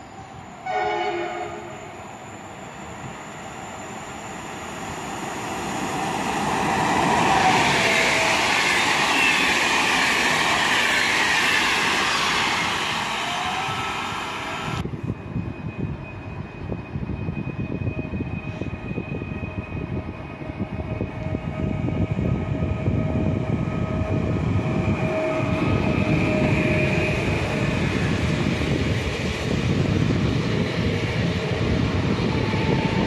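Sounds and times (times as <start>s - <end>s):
quieter train rumble: 0.0s - 33.0s
train passing at speed: 0.0s - 33.0s
train horn blast: 0.6s - 1.8s.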